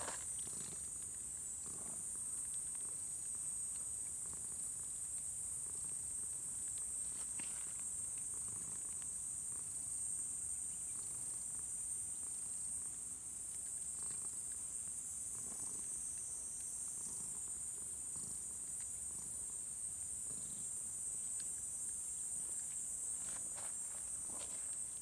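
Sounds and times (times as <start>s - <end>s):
insect chorus trilling: 0.0s - 1.8s.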